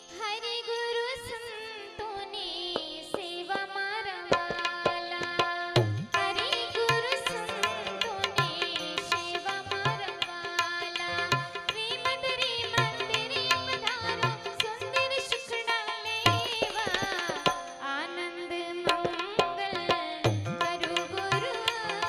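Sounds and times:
tabla strokes: 4.3s - 18.0s, 18.8s - 22.0s.

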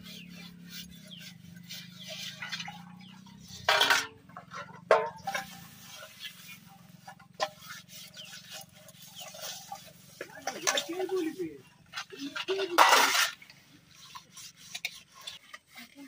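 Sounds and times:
metal pots clanking: 2.3s - 6.2s, 9.2s - 13.5s.

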